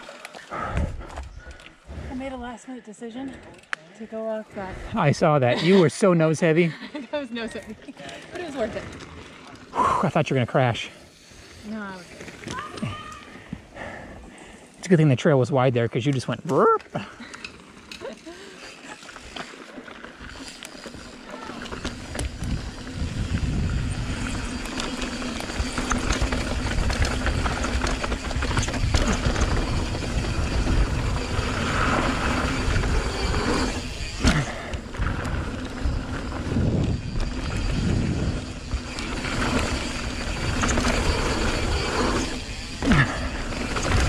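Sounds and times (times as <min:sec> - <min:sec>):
bike rattling: 0:00.0 - 0:44.0
wind buffeting microphone: 0:22.0 - 0:44.0.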